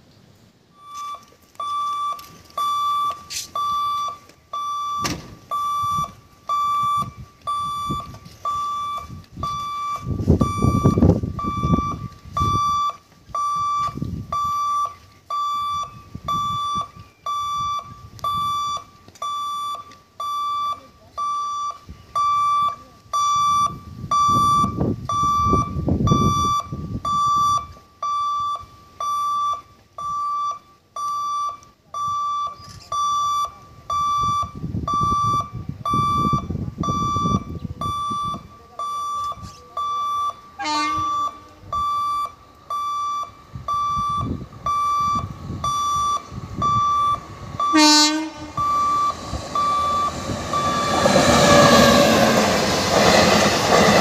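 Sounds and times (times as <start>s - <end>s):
level crossing warning beeps: 0.7s - 54.0s
low rumbling: 43.4s - 54.0s.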